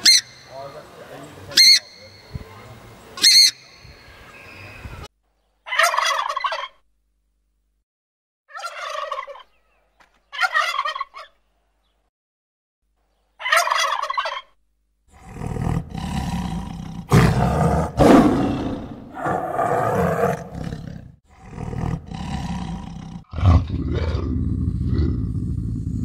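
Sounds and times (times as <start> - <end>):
loud deep animal calls: 15.1 - 26.0.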